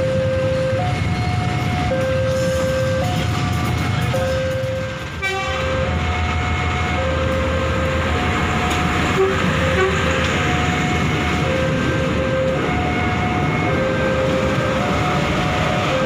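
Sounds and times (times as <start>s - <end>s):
level-crossing alarm two tones: 0.0s - 16.0s
train rumbling past: 0.0s - 16.0s
train horn toot: 5.2s - 6.4s, 9.0s - 10.3s.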